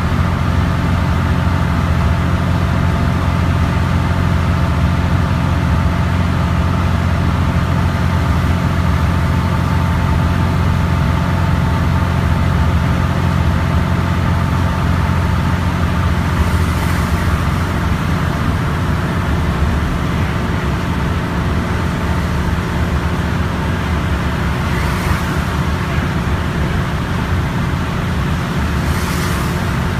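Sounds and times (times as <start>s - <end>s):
bus engine drone: 0.0s - 29.9s
road and tyre noise: 0.0s - 29.9s
brief hissing: 24.6s - 25.6s, 28.8s - 29.9s.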